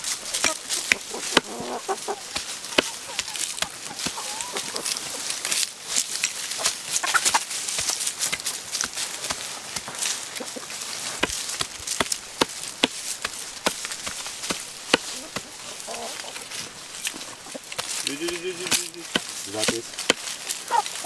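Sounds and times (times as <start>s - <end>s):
chickens clucking: 0.0s - 21.0s
cleaver chopping meat on wood: 0.3s - 1.6s, 2.3s - 4.3s, 11.2s - 15.9s, 17.0s - 20.4s.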